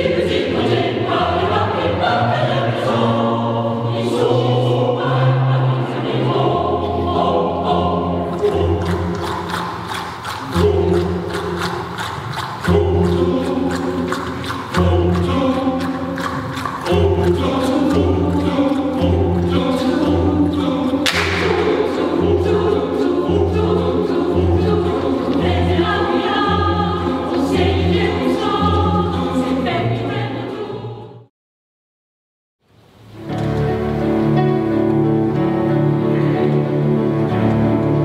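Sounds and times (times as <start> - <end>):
choir singing with instruments: 0.0 - 31.3, 33.2 - 38.0.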